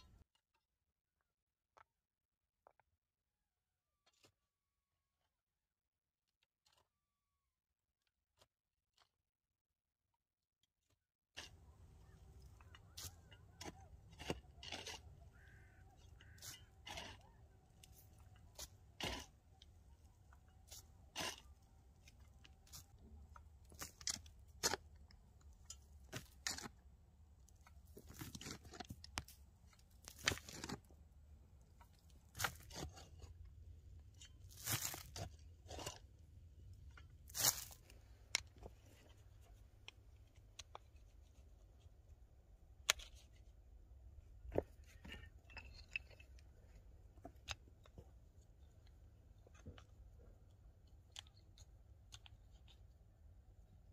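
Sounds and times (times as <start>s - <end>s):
stony soil scraped by hand: 11.4s - 39.6s.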